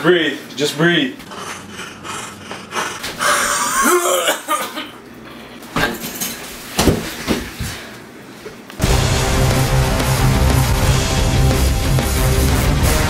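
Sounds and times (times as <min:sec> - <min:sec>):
man gasping cry: 0:01.2 - 0:04.7
man coughing hard: 0:03.2 - 0:05.0.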